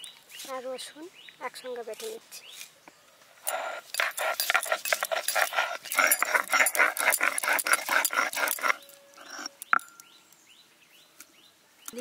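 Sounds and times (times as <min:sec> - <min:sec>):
stone roller rasping on slab: 0:03.5 - 0:09.8.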